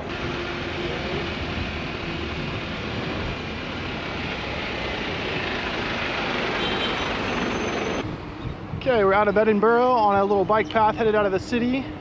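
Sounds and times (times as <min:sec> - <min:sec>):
bus engine running: 0:00.0 - 0:08.0
city traffic: 0:00.0 - 0:12.0.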